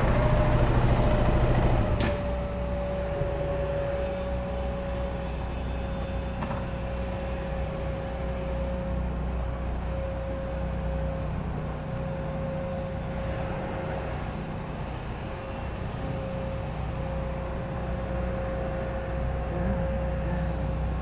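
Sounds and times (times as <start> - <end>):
thin steady whine: 0.0 - 21.0.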